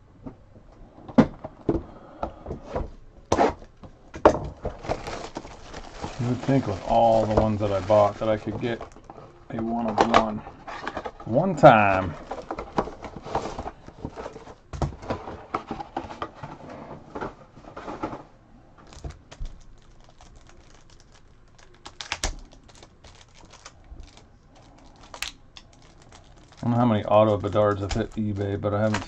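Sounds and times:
plastic wrap crinkling: 4.6s - 14.6s, 18.8s - 29.0s
cards clicking and tapping: 27.2s - 29.0s.

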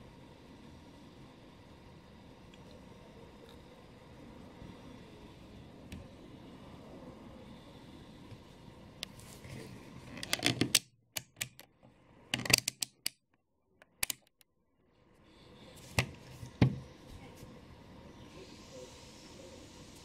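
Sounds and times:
sharp clicks and taps: 13.8s - 14.5s.

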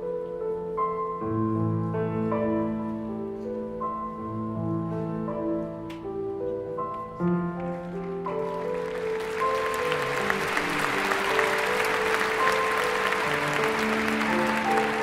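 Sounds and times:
slow instrumental music: 0.0s - 15.0s
audience applause: 8.3s - 15.0s.

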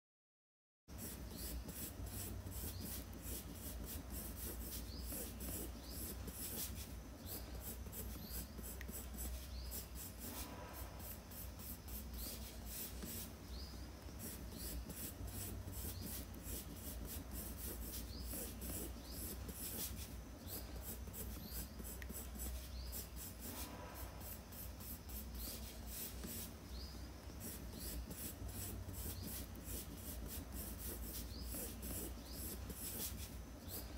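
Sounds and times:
pencil scratching on paper: 1.0s - 33.9s.

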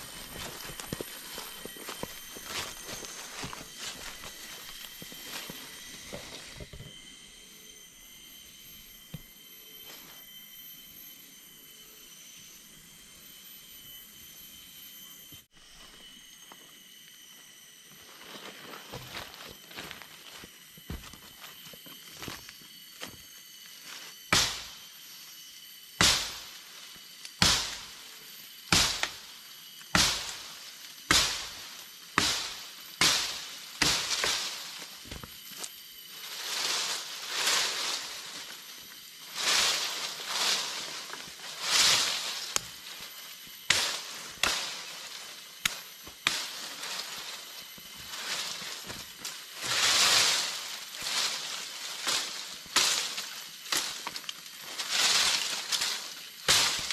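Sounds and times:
leaves and twigs rustling: 0.0s - 10.4s, 15.5s - 56.9s
machete chopping branch: 24.3s - 24.8s, 26.0s - 26.6s, 27.3s - 28.0s, 28.7s - 29.3s, 29.9s - 30.5s, 31.1s - 35.3s, 41.1s - 47.2s, 48.2s - 56.9s.

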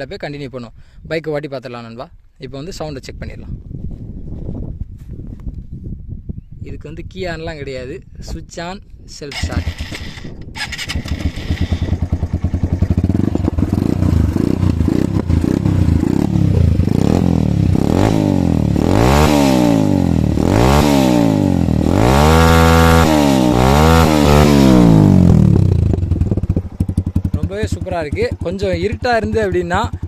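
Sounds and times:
motorcycle engine idling and revving: 9.3s - 30.0s.

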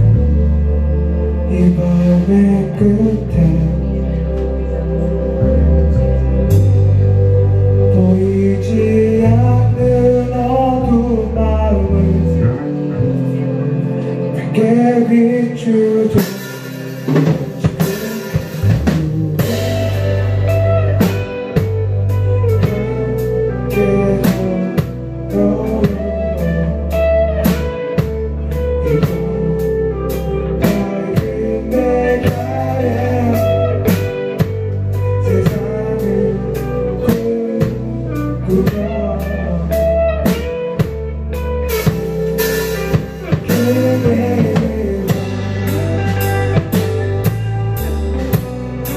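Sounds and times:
electric bass: 0.0s - 48.9s
electric guitars: 0.0s - 48.9s
drum kit beat: 16.2s - 48.9s.

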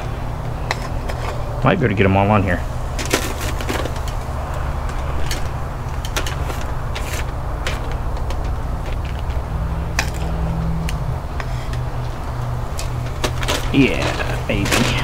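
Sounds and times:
low rumble: 0.0s - 15.0s
metal tongs clicking and scraping: 3.0s - 15.0s.

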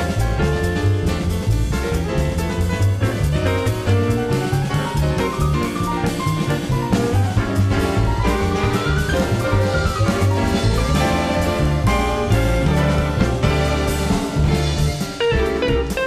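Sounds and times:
bass: 0.0s - 16.0s
drum kit: 0.0s - 16.0s
jazz band playing: 0.0s - 16.0s
sliding lead melody: 0.0s - 16.0s.

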